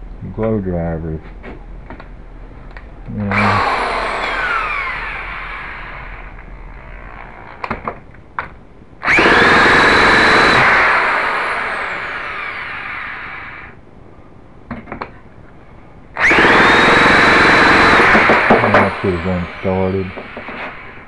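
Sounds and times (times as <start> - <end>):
ducted fan whine: 0.0 - 21.0
electric starter spinning engine: 3.3 - 7.7, 9.0 - 13.8, 16.2 - 21.0.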